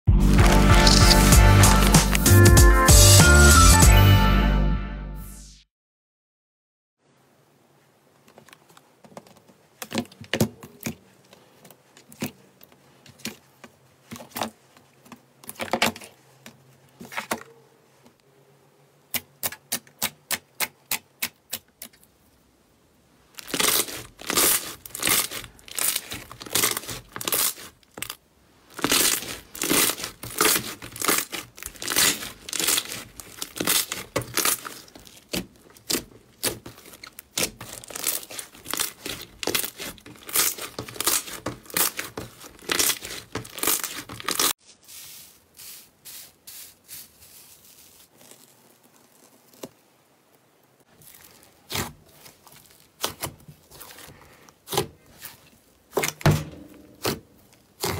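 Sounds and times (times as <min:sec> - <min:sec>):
slime crackling and popping: 0:00.3 - 0:02.3, 0:23.3 - 0:44.6, 0:47.6 - 0:50.0, 0:50.8 - 0:56.2, 0:57.0 - 0:57.9.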